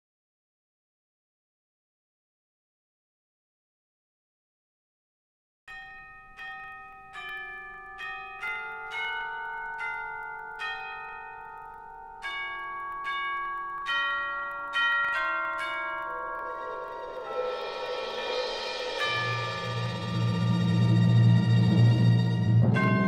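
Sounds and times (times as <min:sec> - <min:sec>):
slow eerie bell melody: 0:05.7 - 0:23.0
noisy swell: 0:16.4 - 0:22.8.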